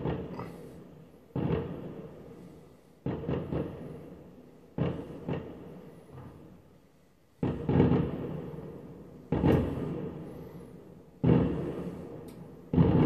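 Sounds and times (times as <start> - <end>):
distant firework bangs: 0.0 - 6.6, 7.4 - 13.0
rumbling echo: 7.4 - 13.0.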